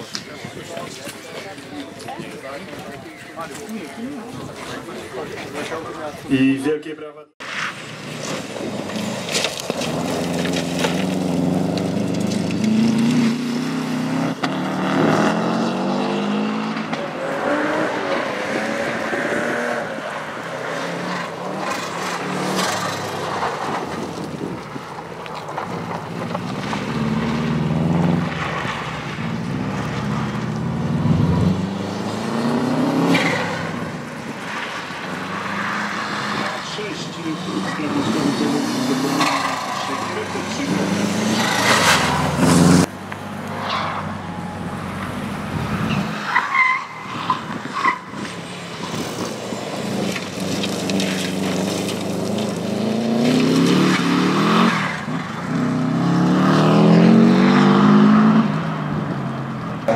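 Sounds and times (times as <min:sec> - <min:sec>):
tyre noise on gravel: 0:07.4 - 0:13.9, 0:43.8 - 0:55.5
car engine revving hard: 0:09.8 - 0:23.2, 0:29.4 - 0:34.0, 0:35.1 - 0:42.9, 0:49.0 - 0:58.7.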